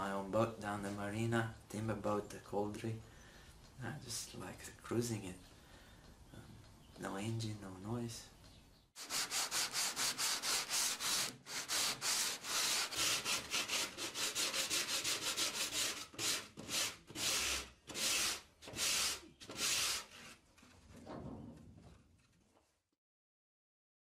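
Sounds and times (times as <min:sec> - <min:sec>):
sandpaper scraping wood: 0:09.0 - 0:20.4.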